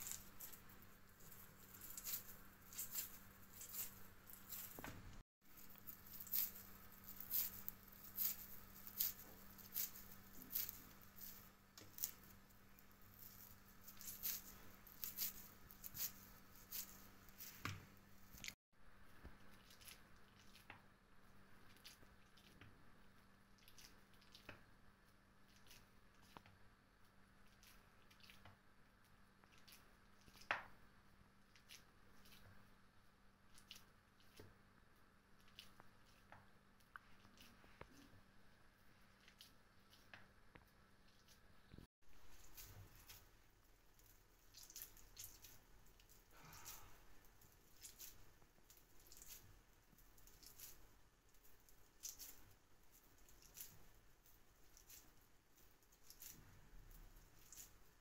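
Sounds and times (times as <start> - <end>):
wet hands squishing meat mixture: 19.3 - 41.6, 42.2 - 58.0.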